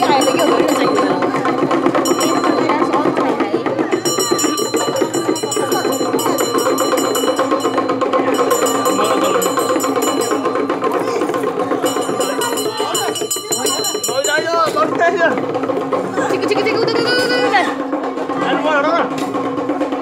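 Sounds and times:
metal bells ringing: 0:00.0 - 0:15.1
fast percussion beating: 0:00.0 - 0:20.0.

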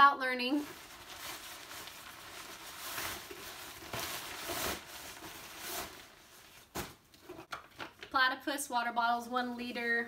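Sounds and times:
nylon rain cover rustling: 0:00.3 - 0:07.1.

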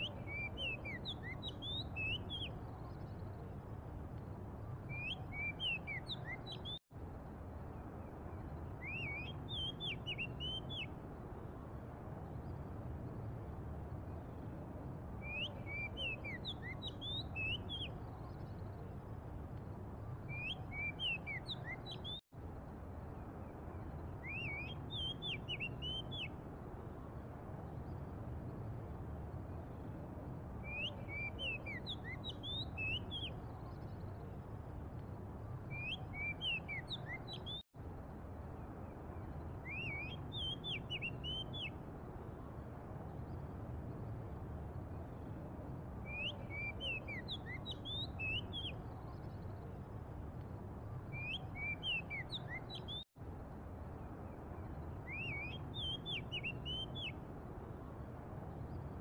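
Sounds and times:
bird whistling song: 0:00.0 - 0:03.4, 0:04.8 - 0:06.8, 0:08.6 - 0:10.9, 0:15.2 - 0:18.5, 0:20.2 - 0:22.2, 0:24.2 - 0:26.4, 0:30.6 - 0:33.9, 0:35.6 - 0:37.6, 0:39.4 - 0:41.8, 0:46.0 - 0:49.6, 0:51.1 - 0:53.0, 0:54.6 - 0:57.2.

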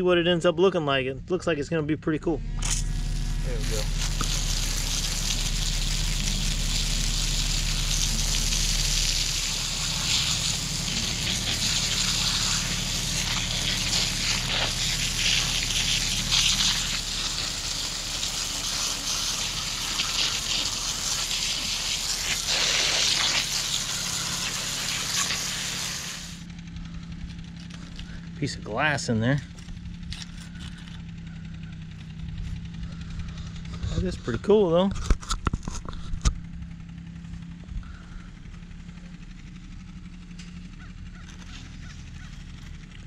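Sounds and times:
hose water spraying on metal: 0:02.8 - 0:26.5.

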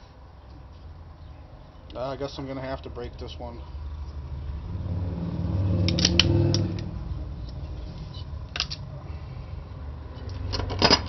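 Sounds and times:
low steady hum: 0:00.0 - 0:11.0
circuit board snapping: 0:05.9 - 0:06.9.

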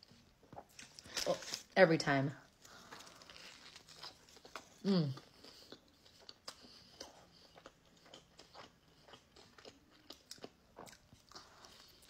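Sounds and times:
chewing sandwich: 0:02.5 - 0:12.0.

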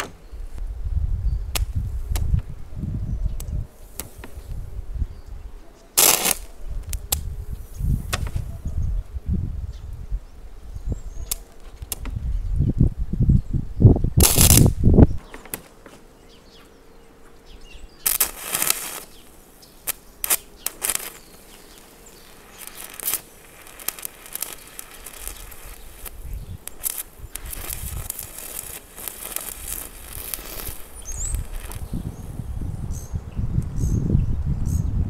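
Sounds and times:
welding arc crackling: 0:06.0 - 0:08.3, 0:14.2 - 0:15.6, 0:18.0 - 0:32.5.

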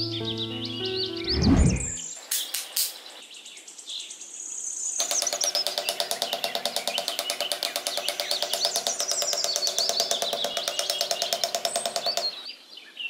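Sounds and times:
birds chirping: 0:00.0 - 0:04.2, 0:04.8 - 0:13.0
low whoosh: 0:01.3 - 0:02.0
sharp clicks: 0:02.1 - 0:03.2, 0:05.0 - 0:12.5.

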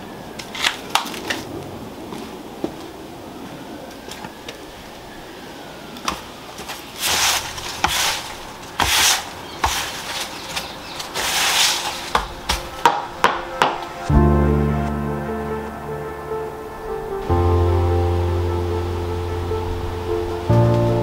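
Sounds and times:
scraping debris off stone paving: 0:06.6 - 0:12.7.

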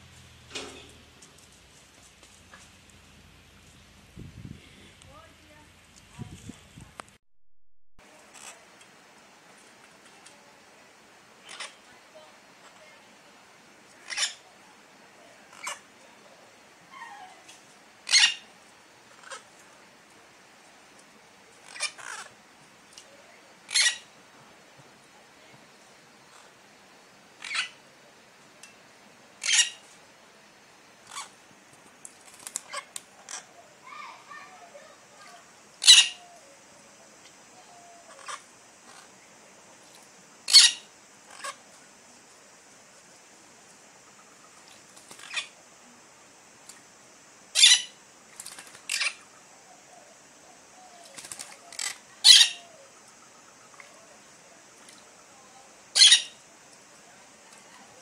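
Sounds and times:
parakeets screeching: 0:11.5 - 0:11.8, 0:14.0 - 0:14.4, 0:15.5 - 0:15.8, 0:18.1 - 0:18.5, 0:19.1 - 0:19.5, 0:21.6 - 0:22.3, 0:23.7 - 0:24.1, 0:27.4 - 0:27.8, 0:29.4 - 0:29.8, 0:31.1 - 0:31.3, 0:32.6 - 0:33.5, 0:35.8 - 0:36.3, 0:38.1 - 0:39.1, 0:40.5 - 0:41.6, 0:45.1 - 0:45.5, 0:47.6 - 0:48.0, 0:48.8 - 0:49.2, 0:51.7 - 0:52.7, 0:56.0 - 0:56.4
falling squawk: 0:18.1 - 0:18.5, 0:23.7 - 0:24.1, 0:27.4 - 0:27.8, 0:29.4 - 0:29.8, 0:35.8 - 0:36.3, 0:40.5 - 0:41.6, 0:47.6 - 0:48.0, 0:51.0 - 0:52.7, 0:56.0 - 0:56.4.

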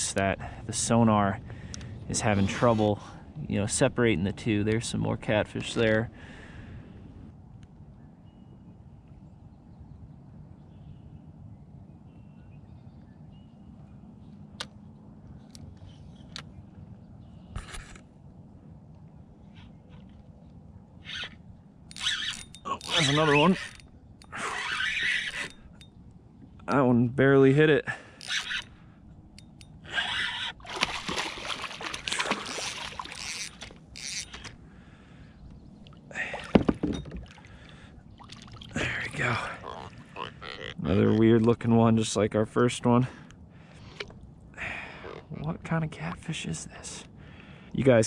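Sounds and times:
low outdoor rumble: 0:00.0 - 0:48.0
faint bird chirps: 0:07.8 - 0:14.4
fish thrashing and splashing: 0:30.6 - 0:34.5, 0:36.3 - 0:40.8.

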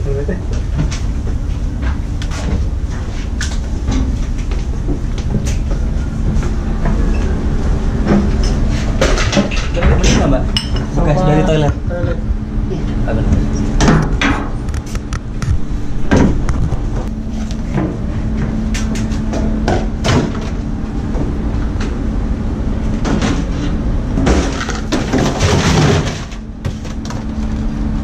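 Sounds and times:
low machinery hum: 0:00.0 - 0:28.0
rubbish clattering in metal bin: 0:23.0 - 0:27.2.

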